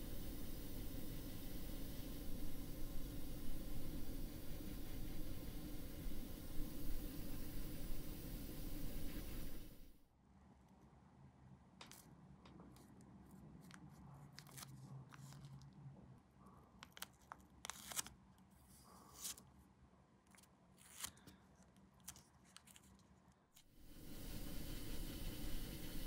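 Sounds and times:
low hum: 0:00.0 - 0:10.0
steady hiss: 0:00.0 - 0:10.0, 0:23.6 - 0:26.0
faint clicks and snips: 0:20.2 - 0:23.7.

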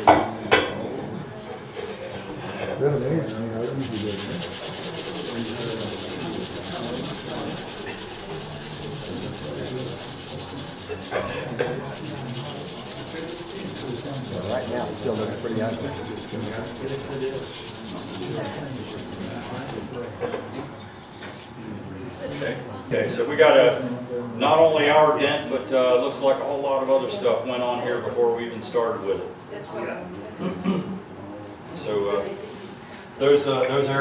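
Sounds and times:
rubbing and scraping on brass: 0:03.3 - 0:20.0.

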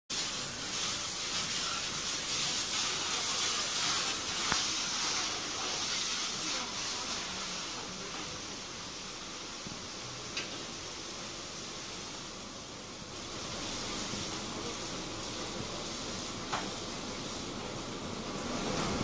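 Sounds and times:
water spraying onto car: 0:00.1 - 0:09.3.

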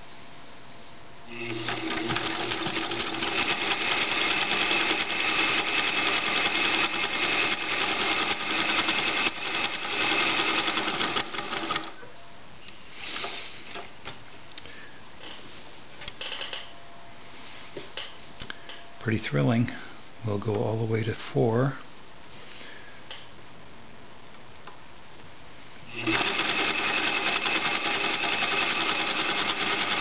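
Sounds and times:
sewing machine stitching: 0:01.3 - 0:12.0, 0:25.9 - 0:30.0.

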